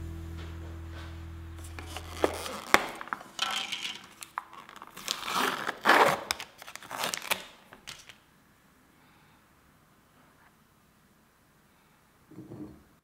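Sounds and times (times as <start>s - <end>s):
plastic packaging crinkling and tearing: 1.6s - 8.3s.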